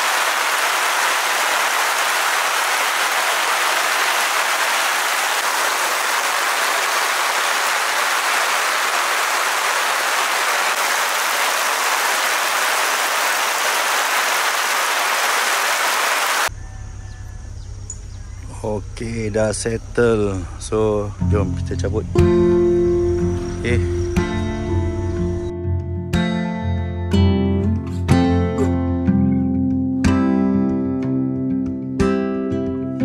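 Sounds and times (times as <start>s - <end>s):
heavy rain: 0.0s - 16.5s.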